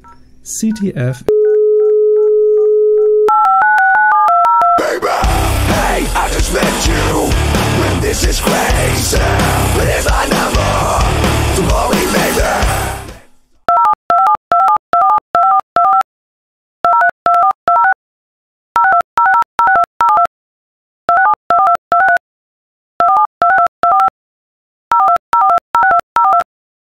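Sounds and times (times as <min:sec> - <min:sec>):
telephone keypad tones: 0:00.0 - 0:04.8, 0:13.7 - 0:16.0, 0:16.9 - 0:18.0, 0:18.8 - 0:20.3, 0:24.9 - 0:26.5.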